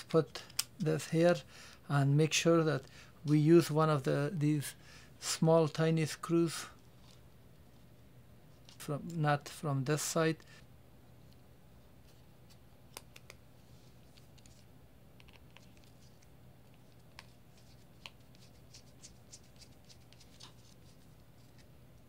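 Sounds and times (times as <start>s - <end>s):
small clicks and scratches: 14.0s - 22.0s.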